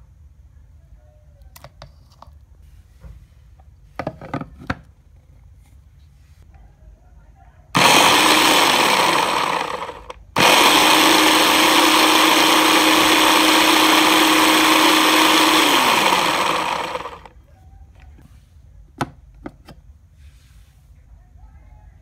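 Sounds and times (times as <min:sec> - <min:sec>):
electric blender running: 0:07.8 - 0:17.3.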